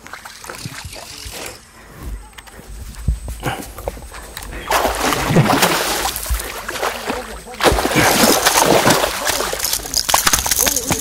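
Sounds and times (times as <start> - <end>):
fish splashing in water: 4.6 - 11.0.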